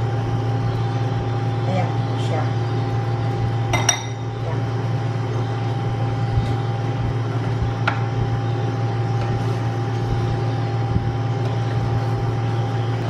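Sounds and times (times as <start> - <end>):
low mechanical hum: 0.0 - 13.0.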